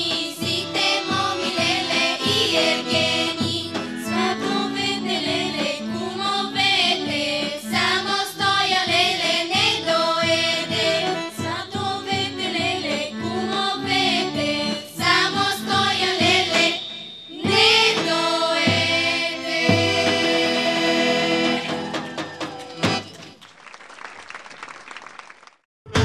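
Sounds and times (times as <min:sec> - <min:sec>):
accordion: 0:00.0 - 0:21.9, 0:22.7 - 0:23.1
children's choir singing: 0:00.0 - 0:21.9
light applause: 0:21.7 - 0:25.6.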